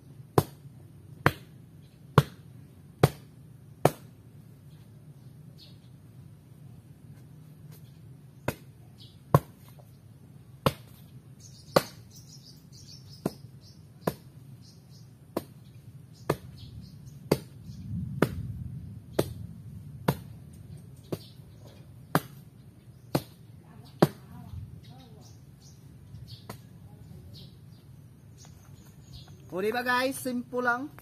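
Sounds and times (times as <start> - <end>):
birds chirping: 4.4 - 31.0
spade chopping into soil: 8.4 - 9.8, 10.6 - 11.1, 11.7 - 12.1, 13.2 - 14.3, 15.3 - 15.6, 16.3 - 16.6, 17.3 - 17.6, 18.2 - 18.5, 19.1 - 19.4, 20.0 - 20.3, 22.1 - 22.5, 23.1 - 23.4.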